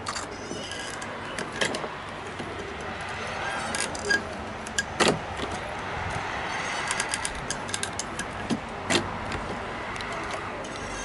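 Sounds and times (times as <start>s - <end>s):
rivet tool clicking: 6.8s - 8.4s.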